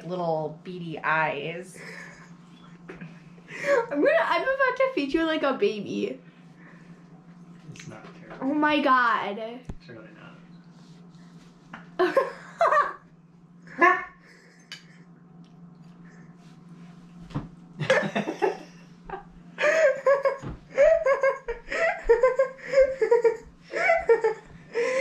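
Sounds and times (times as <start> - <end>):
faint low hum: 0.0 - 25.0
people laughing: 12.0 - 13.0, 17.8 - 25.0.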